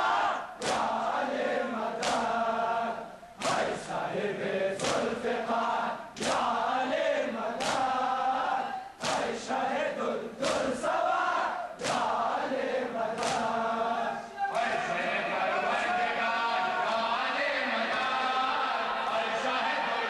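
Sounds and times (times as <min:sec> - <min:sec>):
crowd of men chanting: 0:00.0 - 0:20.0
collective chest slaps: 0:00.6 - 0:01.0, 0:02.0 - 0:02.3, 0:03.4 - 0:03.8, 0:04.8 - 0:05.2, 0:06.2 - 0:06.5, 0:07.6 - 0:08.0, 0:09.0 - 0:09.4, 0:10.4 - 0:10.8, 0:11.8 - 0:12.2, 0:13.2 - 0:13.6.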